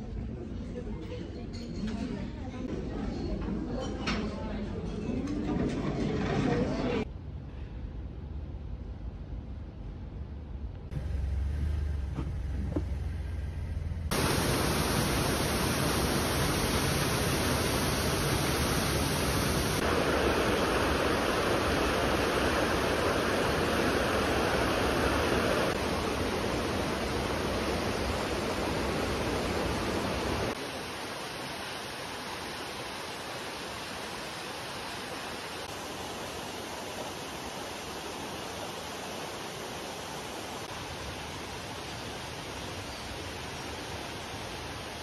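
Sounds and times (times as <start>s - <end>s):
low rumble: 7.1s - 16.3s
rushing water of stream: 14.1s - 45.0s.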